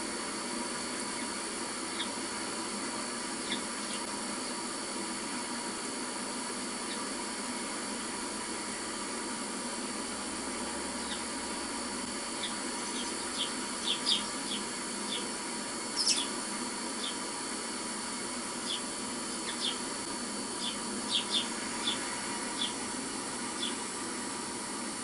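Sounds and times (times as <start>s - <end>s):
steady speaker hiss: 0.0s - 25.0s
sparrows chirping: 1.0s - 2.3s, 3.4s - 4.1s, 11.0s - 11.3s, 12.3s - 17.3s, 18.6s - 19.9s, 20.5s - 23.9s.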